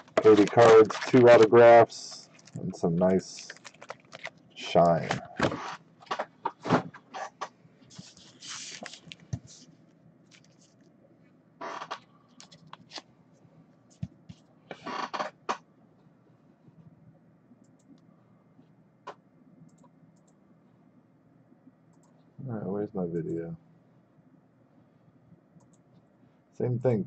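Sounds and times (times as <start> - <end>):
card packs rustling: 0.0 - 5.5, 8.0 - 9.6.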